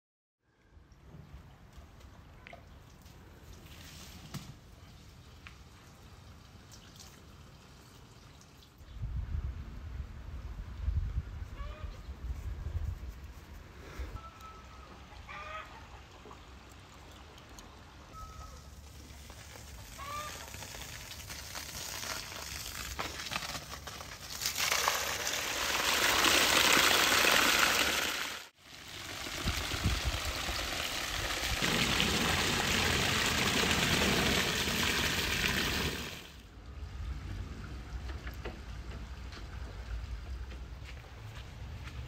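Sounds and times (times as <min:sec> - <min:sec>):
water splashing onto metal pan: 0:24.3 - 0:36.4.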